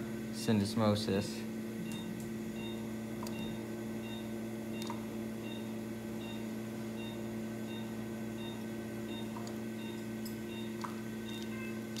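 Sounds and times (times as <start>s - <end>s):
equipment hum: 0.0s - 12.0s.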